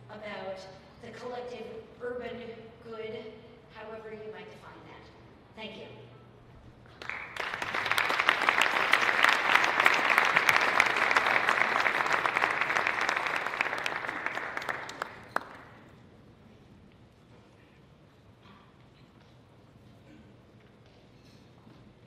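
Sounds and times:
audience applauding: 6.9 - 15.8.

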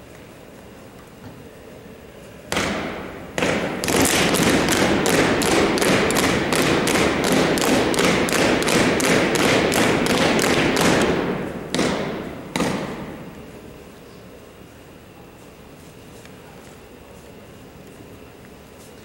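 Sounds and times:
stomping on wooden gym floor: 2.5 - 13.3.

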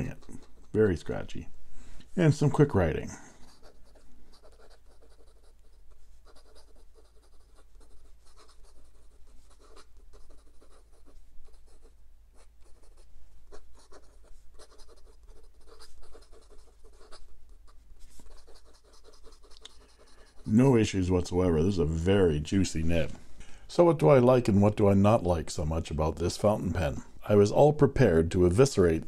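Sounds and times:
pen nib scratching on paper: 0.0 - 0.9, 3.4 - 20.9.

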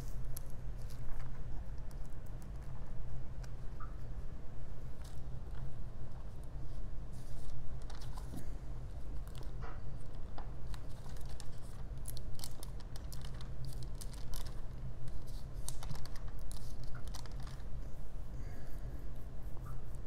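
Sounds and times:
steady low hum: 0.0 - 20.0
thin paper pages rustling: 7.2 - 8.4, 10.6 - 17.8.

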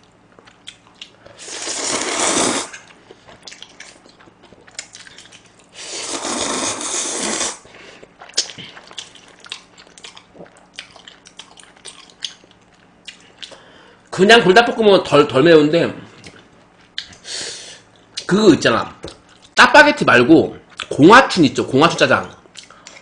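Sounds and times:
chewing with wet mouth clicks: 0.0 - 1.2, 2.8 - 5.7, 8.0 - 13.6, 16.2 - 17.2, 22.4 - 23.0
person slurping noodles: 1.3 - 2.9, 5.7 - 7.7.

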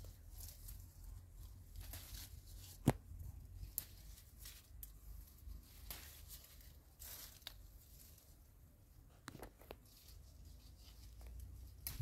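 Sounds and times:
foliage rustling: 0.0 - 12.0
plant stems snapping: 1.5 - 7.8, 11.1 - 12.0.

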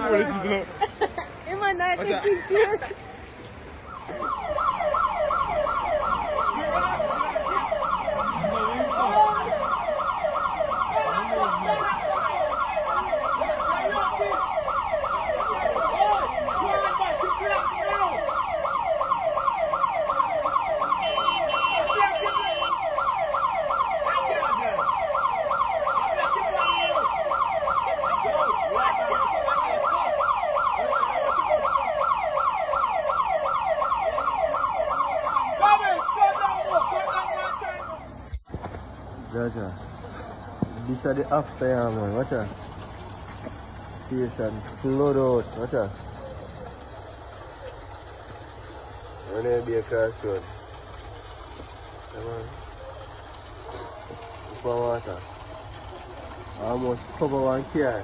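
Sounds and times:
siren yelping: 3.7 - 38.2.

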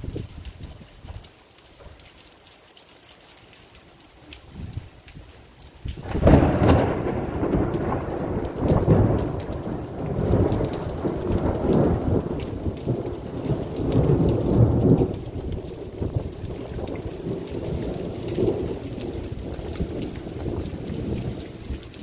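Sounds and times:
heavy rain: 0.0 - 22.0
thunder rumbling: 5.8 - 22.0.

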